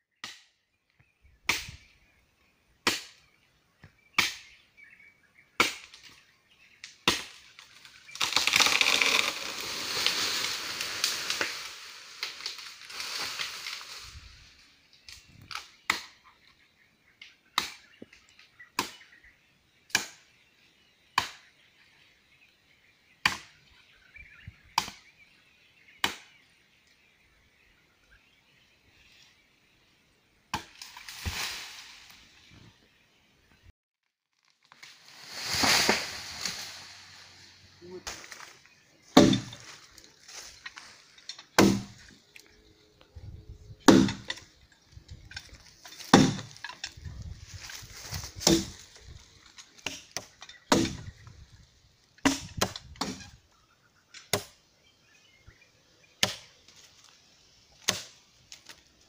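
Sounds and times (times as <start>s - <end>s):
axe chopping tree trunk: 2.8s - 3.2s, 4.2s - 4.5s, 5.6s - 6.0s, 7.0s - 7.4s, 17.5s - 18.0s, 18.8s - 19.2s, 19.9s - 20.2s, 21.2s - 21.5s, 23.2s - 23.6s, 24.7s - 25.1s, 26.0s - 26.4s, 30.5s - 31.5s, 39.1s - 39.8s, 41.5s - 42.1s, 43.8s - 44.5s, 45.9s - 46.8s, 48.3s - 48.8s, 49.8s - 51.2s, 52.2s - 53.4s, 54.2s - 54.6s, 56.2s - 56.5s, 57.8s - 58.8s
tree falling through branches: 7.0s - 15.7s, 30.7s - 32.8s, 34.0s - 53.4s.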